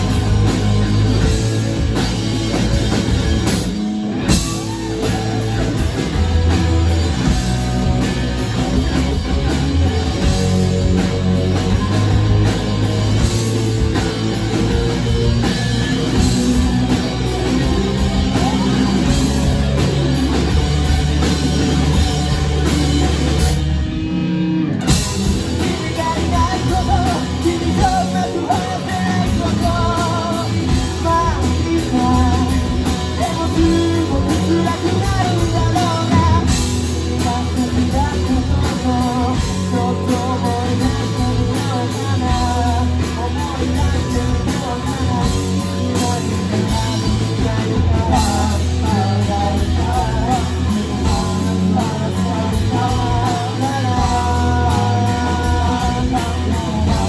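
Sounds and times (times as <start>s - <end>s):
live rock band playing: 0.0s - 57.0s
lead vocal singing: 15.4s - 20.6s, 25.2s - 57.0s.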